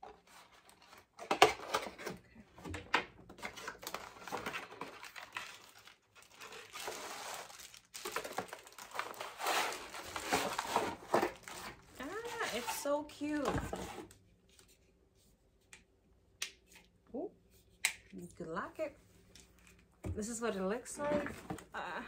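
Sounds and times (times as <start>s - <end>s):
packaging rustling and crinkling: 3.3s - 12.9s.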